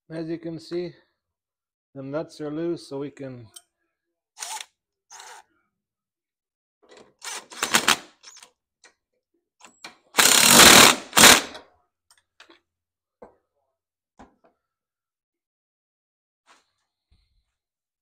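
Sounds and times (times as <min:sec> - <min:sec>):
impact driver rattling bursts: 0:07.2 - 0:08.1, 0:10.2 - 0:11.6.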